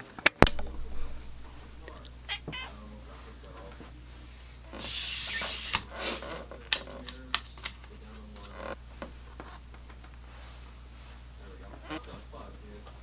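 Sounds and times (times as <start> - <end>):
sharp clicks and knocks: 0.4 - 2.6.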